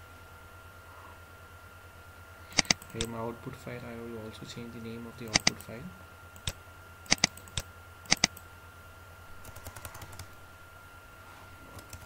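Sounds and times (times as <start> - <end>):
sharp mouse clicks: 2.5 - 3.1, 5.3 - 5.6, 6.4 - 8.4, 9.4 - 10.3, 11.8 - 12.0
keyboard key presses: 2.6 - 3.1, 5.3 - 5.6, 6.4 - 8.4.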